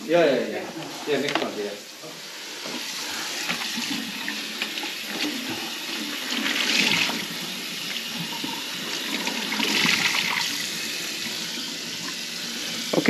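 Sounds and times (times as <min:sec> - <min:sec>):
tap water running into sink: 0:02.6 - 0:13.0.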